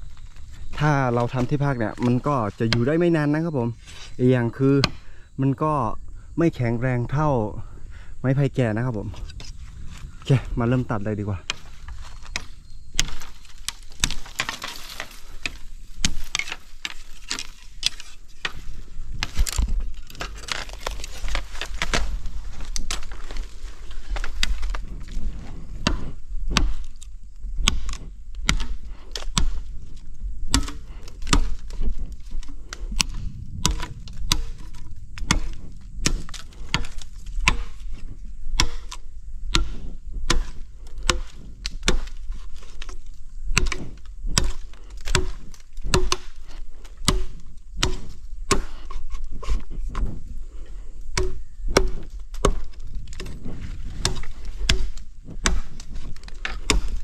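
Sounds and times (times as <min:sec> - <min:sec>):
blade chopping bamboo: 0:11.5 - 0:23.5, 0:24.1 - 0:50.2, 0:51.1 - 0:57.0.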